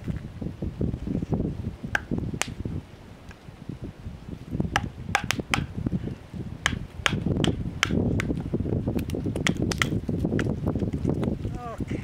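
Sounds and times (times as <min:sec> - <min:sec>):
campfire crackling: 0:00.0 - 0:12.0
sharp pops: 0:04.7 - 0:05.7, 0:06.6 - 0:10.5.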